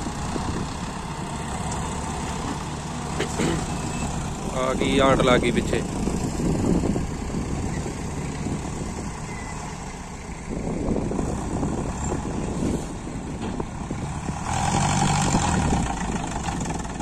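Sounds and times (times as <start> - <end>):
tractor engine under heavy load: 0.0 - 17.0.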